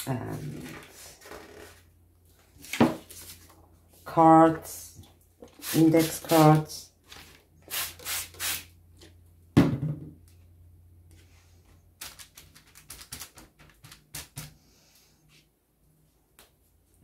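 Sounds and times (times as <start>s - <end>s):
spray bottle spritzes: 7.7s - 8.7s
knock: 9.6s - 10.2s
paper cards clicking and rustling: 12.0s - 14.6s.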